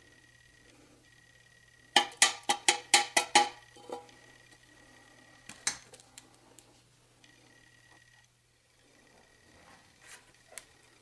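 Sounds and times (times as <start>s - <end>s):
tin can clanking: 2.0s - 4.1s.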